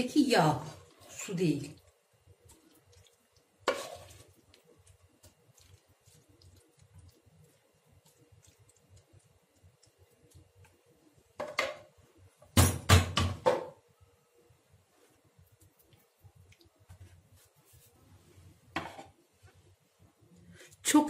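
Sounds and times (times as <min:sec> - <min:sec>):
kitchenware knocks and scrapes: 0:03.7 - 0:04.2, 0:18.7 - 0:19.2.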